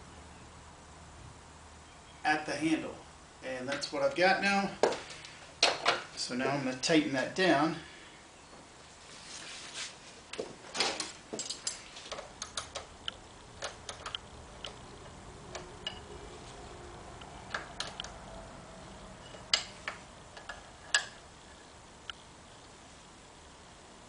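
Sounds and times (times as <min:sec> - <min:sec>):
wrench metal clicks: 0:17.2 - 0:18.2, 0:19.2 - 0:21.2.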